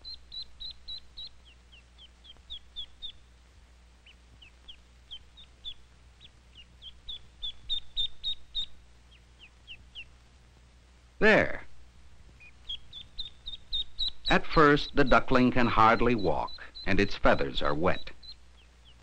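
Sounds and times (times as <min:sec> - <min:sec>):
duckling peeping: 0:00.0 - 0:10.5, 0:11.2 - 0:19.0.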